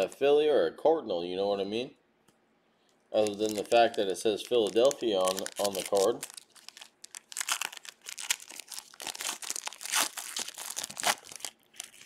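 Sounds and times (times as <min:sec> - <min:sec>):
foil wrapper crinkling and tearing: 0:03.2 - 0:12.0.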